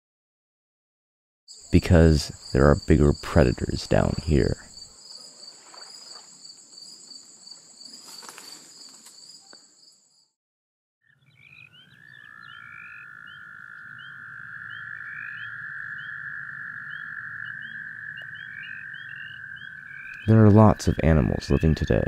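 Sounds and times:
frog trill: 11.1s - 22.0s.

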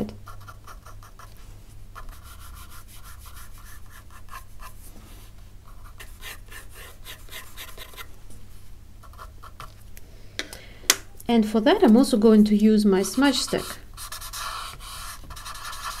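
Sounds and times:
pencil scratching on paper: 2.0s - 4.8s, 5.8s - 8.1s, 13.0s - 16.0s.

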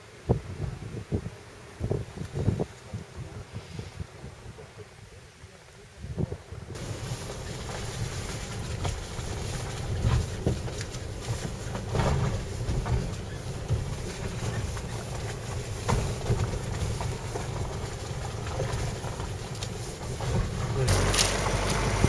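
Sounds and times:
engine and tyre rumble: 6.6s - 22.0s
suspension knocks and rattles: 6.8s - 22.0s.

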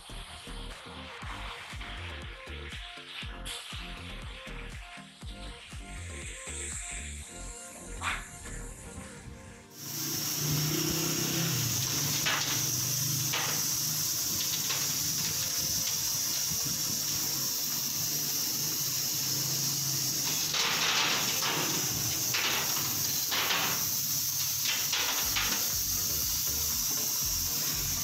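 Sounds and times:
laser cutter hissing and humming: 6.3s - 28.0s
plastic pieces clattering: 11.7s - 16.0s.

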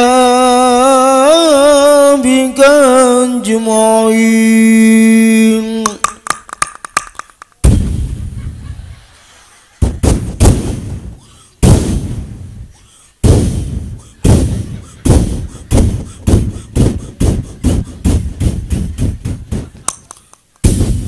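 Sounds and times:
large drum booming: 7.6s - 8.4s, 9.8s - 19.8s, 20.6s - 21.0s.

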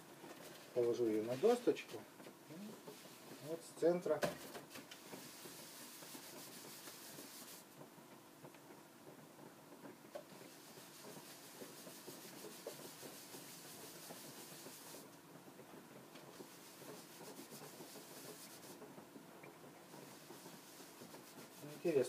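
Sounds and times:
cloth rag rubbing wood: 1.1s - 3.7s, 4.7s - 7.7s, 10.3s - 15.1s, 16.2s - 18.9s, 19.9s - 22.0s.

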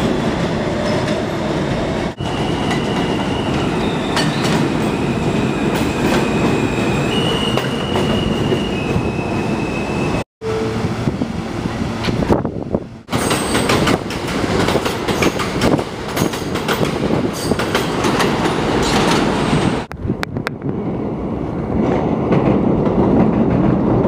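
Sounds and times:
train wheels rumbling on track: 0.0s - 10.2s, 10.8s - 24.0s
high wheel squeal: 2.2s - 10.7s.

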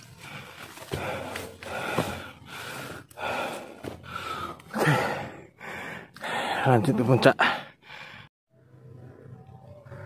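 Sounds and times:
man panting: 0.0s - 6.8s, 7.4s - 8.3s.

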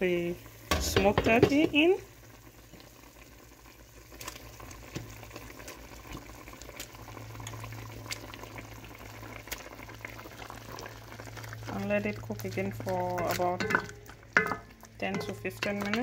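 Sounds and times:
broth boiling in a pot: 0.0s - 16.0s
low steady hum: 11.3s - 16.0s.

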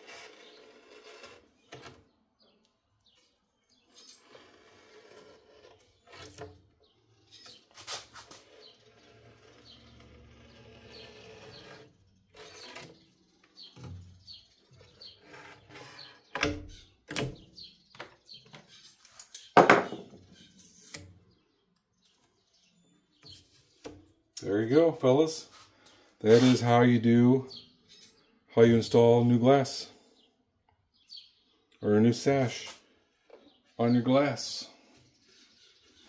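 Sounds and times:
sharp knocks on wood: 19.6s - 20.2s
clicks and rubbing: 26.3s - 26.7s.

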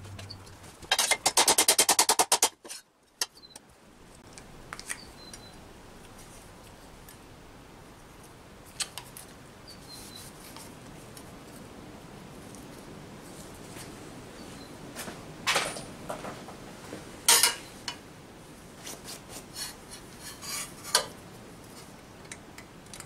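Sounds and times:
metal being handled: 17.3s - 18.0s.

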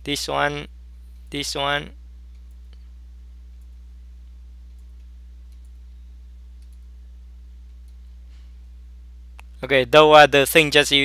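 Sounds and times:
steady low hum: 0.0s - 11.0s
computer mouse clicking: 4.7s - 5.8s, 6.6s - 6.9s.

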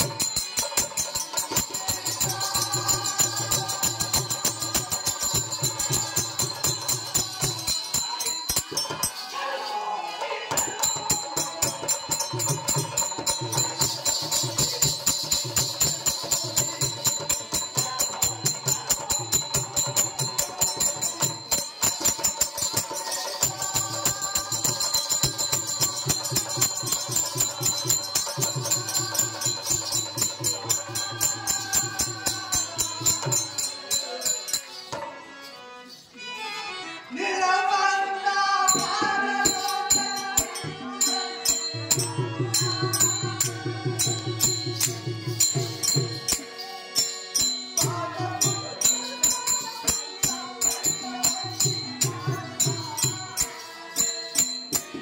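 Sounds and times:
small cymbals clinking: 0.0s - 9.4s, 10.5s - 36.4s, 38.7s - 55.0s
person singing: 0.0s - 55.0s.

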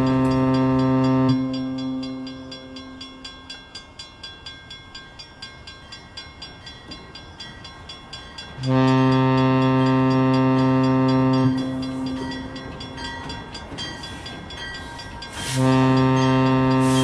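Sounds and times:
model locomotive horn blast: 0.0s - 3.0s, 8.6s - 12.5s, 15.3s - 17.0s
quiet rhythmic ticking: 0.0s - 16.9s.

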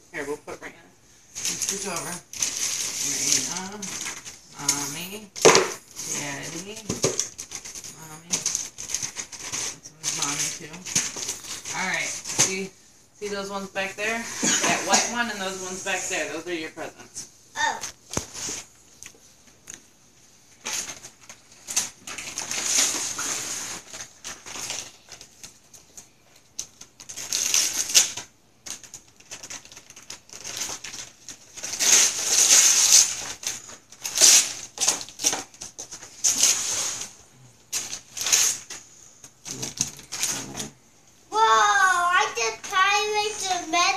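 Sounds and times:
wrapping paper tearing: 1.4s - 12.7s, 20.5s - 40.8s, 41.4s - 43.9s.

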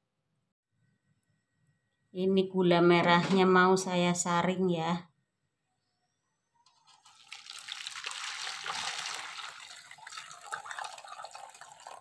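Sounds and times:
syrup pouring and splashing: 6.9s - 12.0s.

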